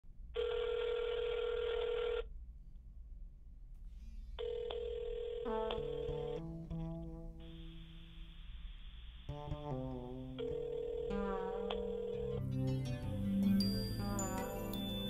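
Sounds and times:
telephone ringing tone: 0.4s - 2.3s, 4.4s - 6.1s, 10.4s - 12.4s
descending music notes: 11.1s - 15.0s.

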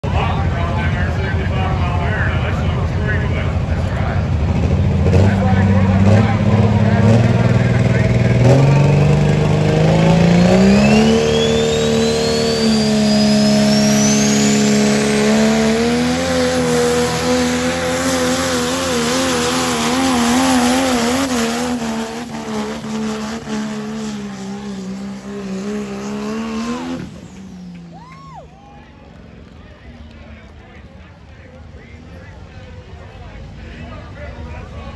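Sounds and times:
diesel truck engine revving: 0.0s - 28.2s
high whistle rising in pitch: 10.4s - 14.9s.

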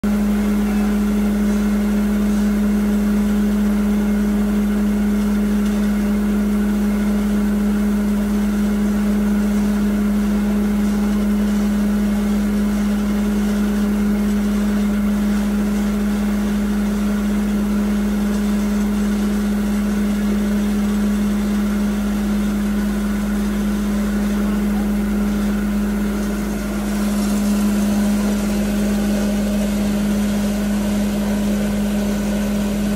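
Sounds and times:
electric motor humming: 9.8s - 32.9s
grinding machine rushing: 21.8s - 32.9s.

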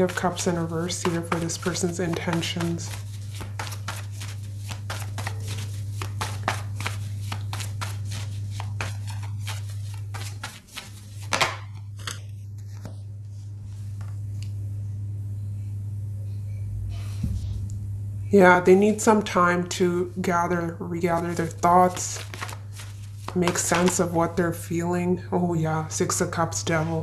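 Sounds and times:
cards being shuffled: 0.0s - 13.0s, 21.0s - 24.1s
steady low hum: 0.0s - 27.0s.

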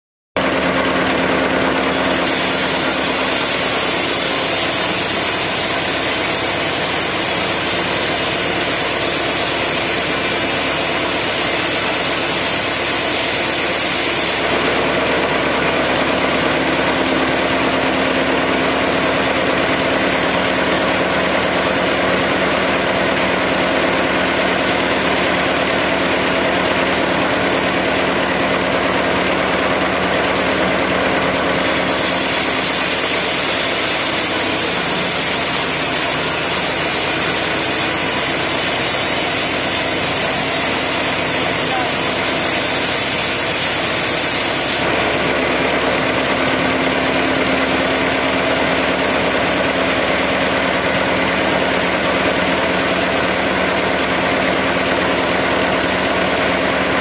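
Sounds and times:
sawmill machinery running: 0.4s - 57.0s
saw blade hissing through log: 1.2s - 14.7s, 30.8s - 45.1s.

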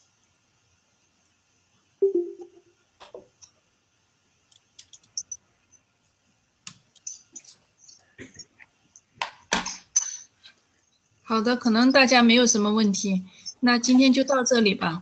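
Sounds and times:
short low tone: 2.0s - 2.6s.

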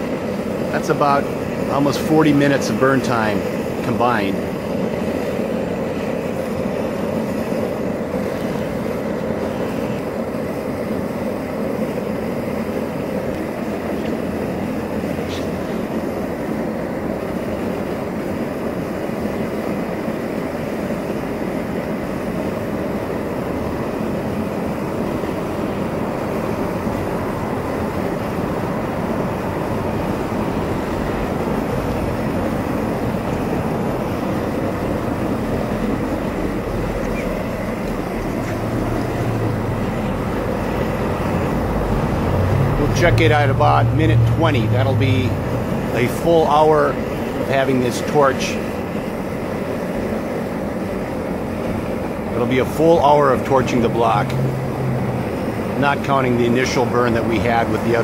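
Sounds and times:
gas torch flame rushing: 0.0s - 58.0s.

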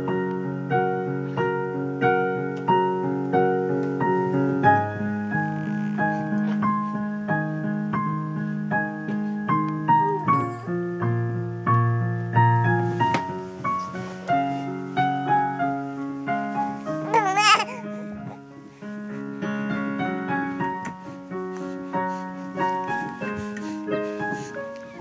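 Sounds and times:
digital piano slow tune: 0.0s - 25.0s.

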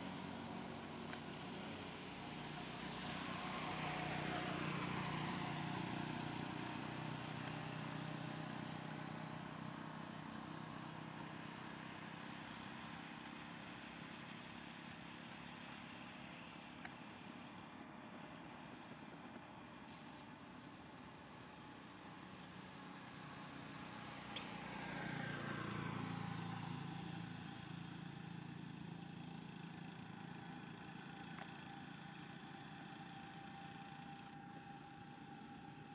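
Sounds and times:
motor vehicle passing by: 0.0s - 13.6s, 22.1s - 35.9s.

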